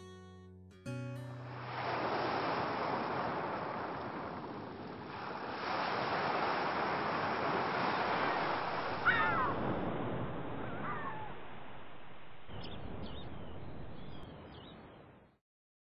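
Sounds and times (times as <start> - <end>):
ocean surf washing: 1.2 - 15.1
bird harsh call: 8.3 - 9.6, 10.6 - 11.4.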